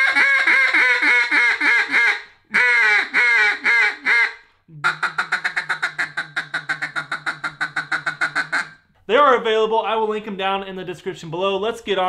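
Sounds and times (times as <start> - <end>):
duck call quacks: 0.0 - 8.8.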